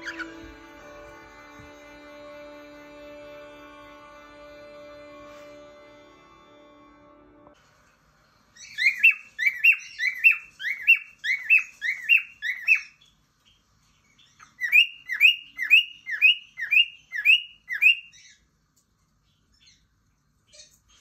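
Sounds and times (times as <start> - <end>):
cockatiel chirping: 0.0 - 0.7, 8.6 - 13.1, 14.2 - 18.4.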